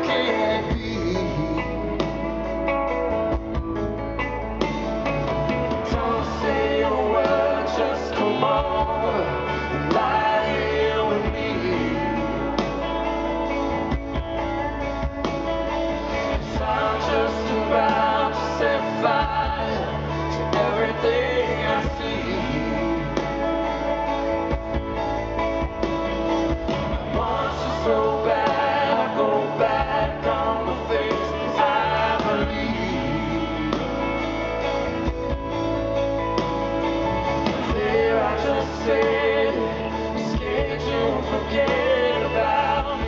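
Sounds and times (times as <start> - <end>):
man singing: 0.0 - 2.6, 5.8 - 13.7, 16.2 - 24.3, 26.7 - 34.8, 37.4 - 43.0
bass: 0.0 - 43.0
electric guitar: 0.0 - 43.0.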